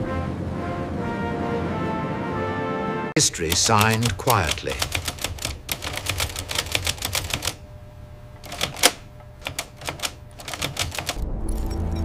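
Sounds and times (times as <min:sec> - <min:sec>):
typewriter keys clacking: 0:03.2 - 0:07.6, 0:08.4 - 0:11.7.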